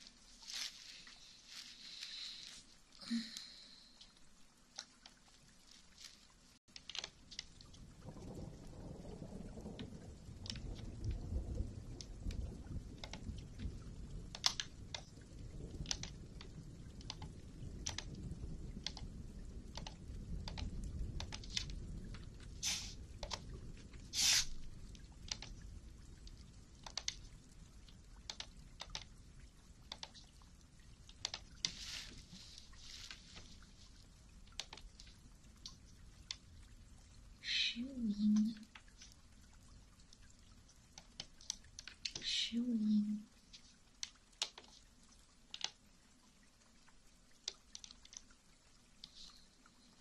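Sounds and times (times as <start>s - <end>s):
short hissing swish: 22.6s - 23.0s, 24.2s - 24.5s
soft clicks: 26.2s - 27.3s, 27.9s - 29.1s, 29.9s - 30.3s, 31.0s - 31.8s, 43.5s - 44.9s, 45.5s - 45.8s.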